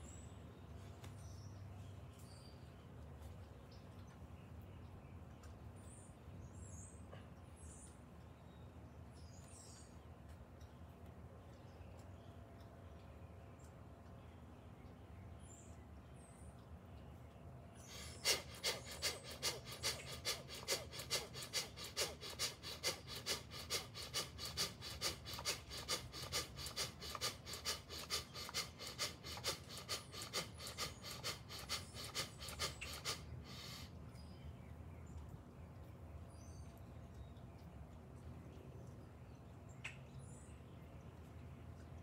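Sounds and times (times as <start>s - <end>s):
rapid forceful rhythmic breathing: 17.8s - 34.0s.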